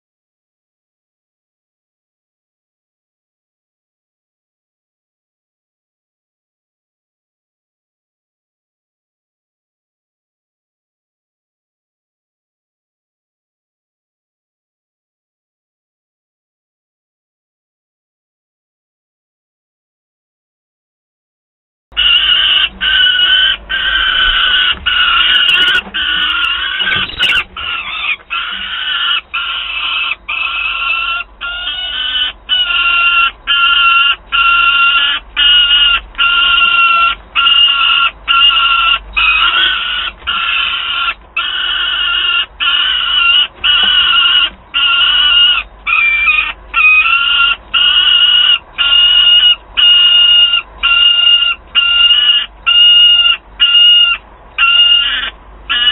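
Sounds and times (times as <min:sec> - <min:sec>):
falcon screaming: 0:22.0 - 0:55.9.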